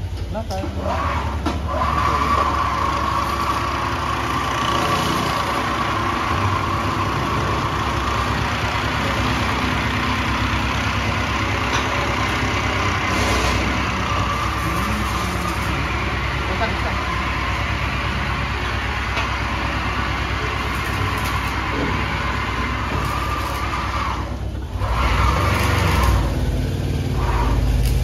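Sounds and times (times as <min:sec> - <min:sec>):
machine whine: 0:00.8 - 0:28.0.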